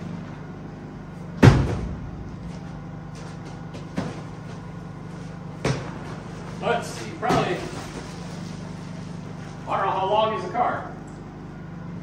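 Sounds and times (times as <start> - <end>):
heavy thump on dirt floor: 1.4 - 2.7.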